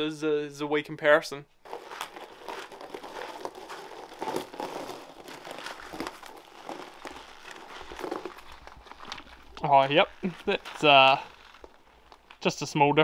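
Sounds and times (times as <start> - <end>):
tyre rolling over gravel: 1.6 - 12.5.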